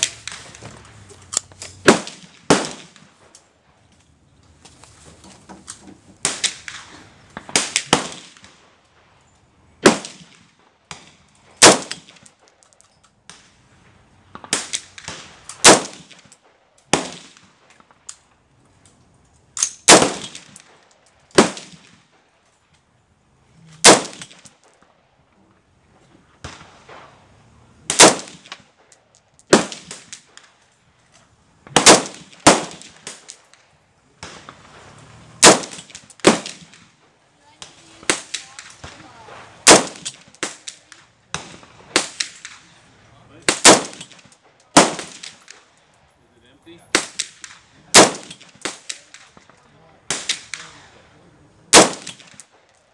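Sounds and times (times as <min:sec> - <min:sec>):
rifle shots: 0:00.0 - 0:00.6, 0:01.8 - 0:03.2, 0:06.2 - 0:08.7, 0:09.8 - 0:12.4, 0:14.3 - 0:17.6, 0:19.6 - 0:22.2, 0:23.8 - 0:24.5, 0:27.8 - 0:28.9, 0:29.5 - 0:30.6, 0:31.7 - 0:33.4, 0:34.2 - 0:37.0, 0:37.6 - 0:42.8, 0:43.4 - 0:45.7, 0:46.9 - 0:49.5, 0:50.1 - 0:51.0, 0:51.7 - 0:52.6.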